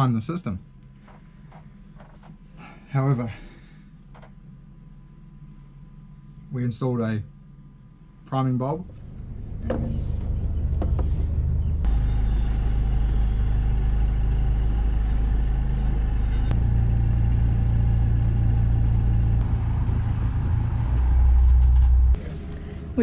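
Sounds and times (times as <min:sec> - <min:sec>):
boat engine humming: 0:08.8 - 0:23.0.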